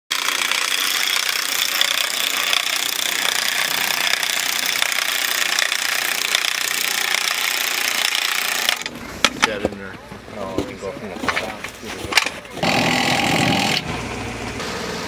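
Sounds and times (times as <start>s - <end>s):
power drill driving into wood: 12.6s - 14.0s.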